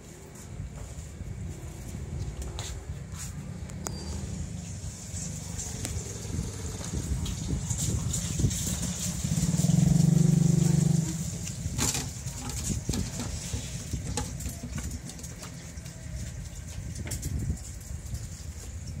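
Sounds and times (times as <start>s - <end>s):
vehicle engine running: 1.2s - 17.6s.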